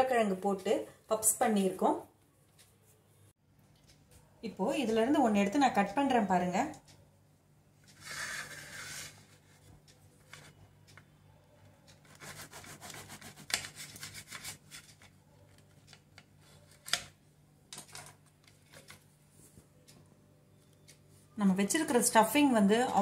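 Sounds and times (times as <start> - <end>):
knife sawing through crisp crust: 12.1 - 14.7.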